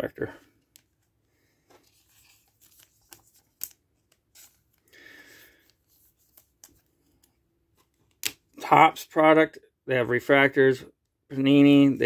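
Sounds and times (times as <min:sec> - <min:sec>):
trading card rustling and clicking: 0:01.7 - 0:04.9.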